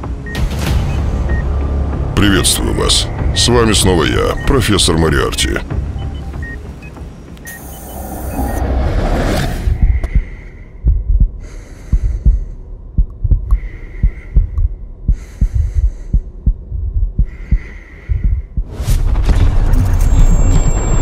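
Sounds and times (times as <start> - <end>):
heartbeat thumps: 9.7 - 21.0.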